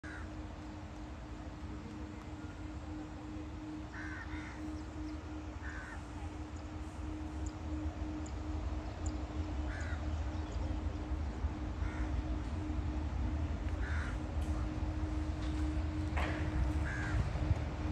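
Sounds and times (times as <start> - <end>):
crows cawing: 0.0 - 0.4, 3.6 - 6.2, 9.6 - 10.2, 11.8 - 12.3, 13.8 - 17.4
faint constant hum: 0.0 - 17.9.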